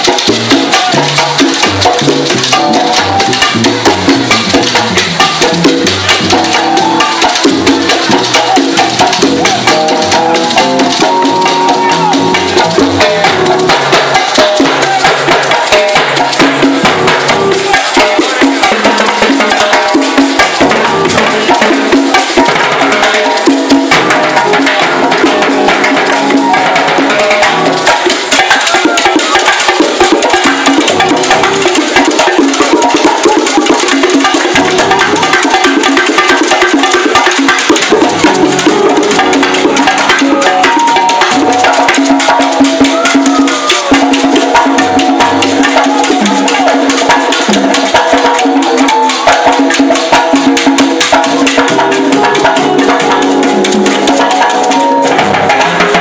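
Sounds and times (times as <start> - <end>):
upright bass: 0.0 - 14.1
live latin band: 0.0 - 56.0.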